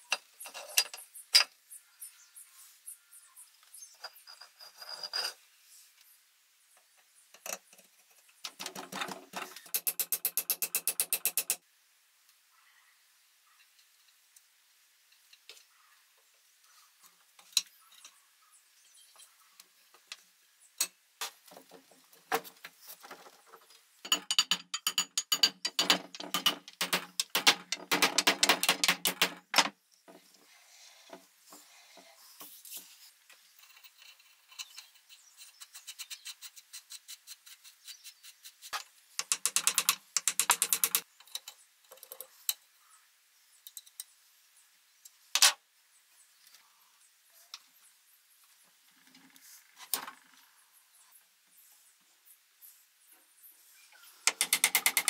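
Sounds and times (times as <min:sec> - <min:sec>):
sharp metallic clicks and knocks: 0:07.4 - 0:11.6, 0:24.0 - 0:29.8, 0:38.7 - 0:42.6, 0:54.3 - 0:55.0
rapid ratchet-like clicking: 0:09.7 - 0:11.6, 0:39.2 - 0:41.0, 0:54.2 - 0:55.0.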